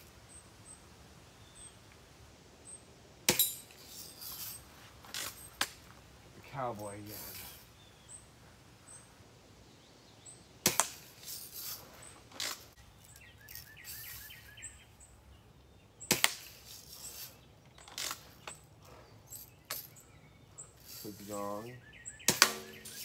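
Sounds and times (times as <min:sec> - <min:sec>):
bb gun shots: 0:10.6 - 0:11.1, 0:22.2 - 0:23.0.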